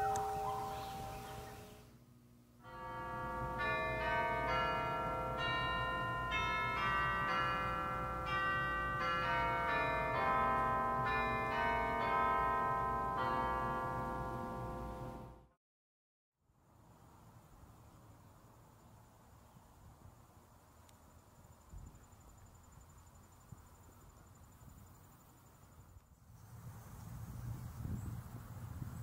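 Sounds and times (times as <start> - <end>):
pipe organ chords: 0.0 - 1.8, 2.7 - 15.4.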